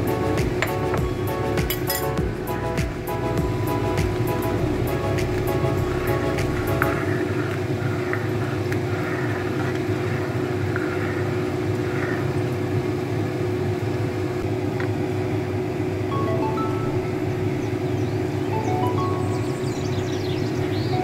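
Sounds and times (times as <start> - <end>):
motor hum: 0.0 - 10.2.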